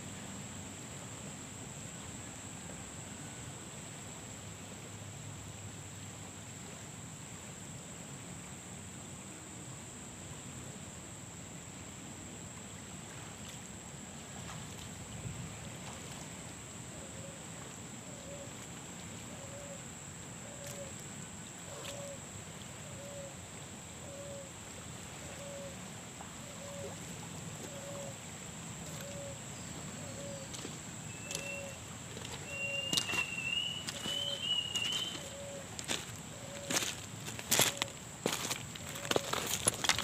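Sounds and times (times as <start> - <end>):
river flowing: 0.0 - 40.0
footsteps on pebbles: 30.5 - 31.6, 32.2 - 40.0
bird chirping: 32.4 - 35.6.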